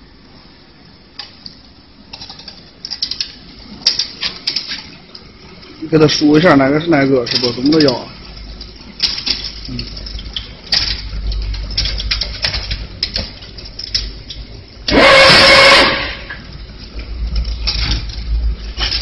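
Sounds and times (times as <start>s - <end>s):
low motor hum: 0.0s - 19.0s
fence weaving machine clattering: 2.1s - 16.1s
loud hissing burst: 14.9s - 16.4s.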